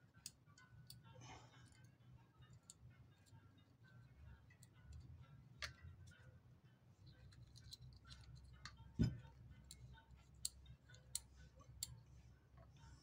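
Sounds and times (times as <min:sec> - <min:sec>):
pliers clicking on metal parts: 0:00.2 - 0:01.0, 0:02.5 - 0:05.8, 0:07.2 - 0:12.0.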